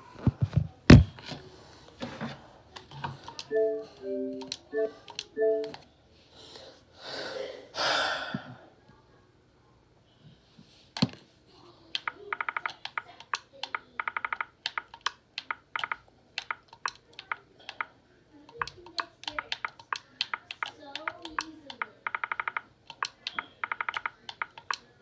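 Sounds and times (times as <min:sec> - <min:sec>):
irregular clicks and taps: 0:12.0 - 0:17.9, 0:18.5 - 0:24.9.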